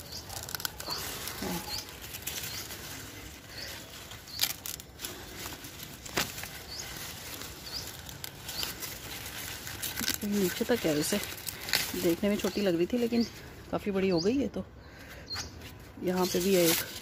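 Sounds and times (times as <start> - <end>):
corn leaves rustling: 0.0 - 14.0, 15.6 - 17.0.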